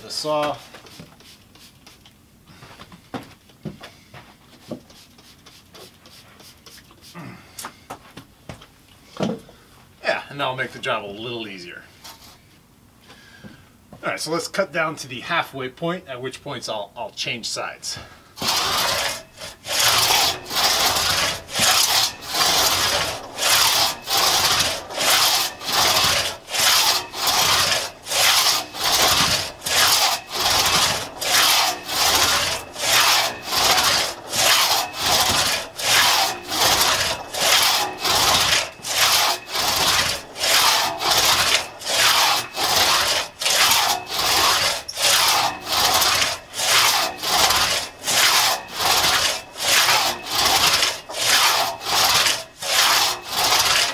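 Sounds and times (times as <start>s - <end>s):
crosscut saw cutting log: 0.0s - 0.7s, 18.4s - 53.9s.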